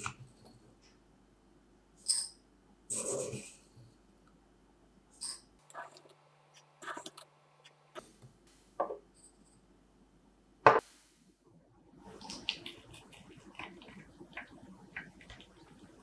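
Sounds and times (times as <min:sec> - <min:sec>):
spoon scraping coffee granules: 0:05.7 - 0:07.3.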